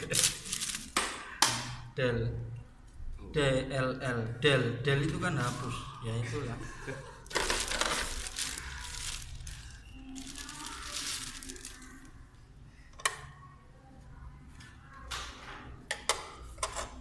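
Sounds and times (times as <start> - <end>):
plastic packaging crinkling: 0.0 - 1.0, 7.2 - 12.1.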